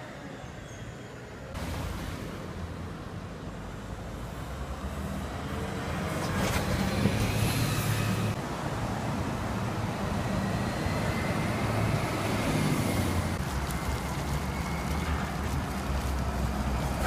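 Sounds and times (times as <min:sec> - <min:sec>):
bus tyres on road: 0:00.0 - 0:17.0
bus engine passing: 0:01.1 - 0:17.0.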